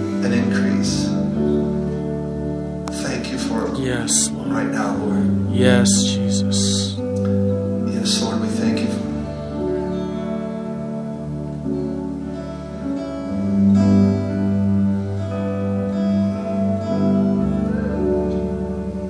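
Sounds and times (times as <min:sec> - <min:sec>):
held keyboard chords: 0:00.0 - 0:19.0.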